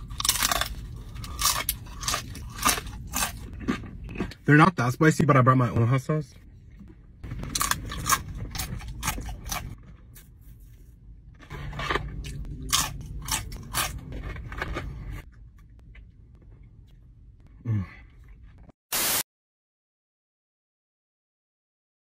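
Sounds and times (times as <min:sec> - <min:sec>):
crunching and chewing tacos: 0:00.0 - 0:04.8, 0:06.5 - 0:18.7.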